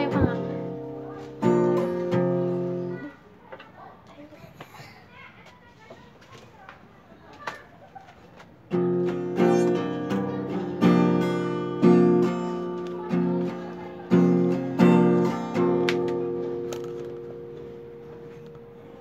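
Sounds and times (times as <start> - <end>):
acoustic guitar strumming: 0.0 - 3.2, 8.7 - 19.0.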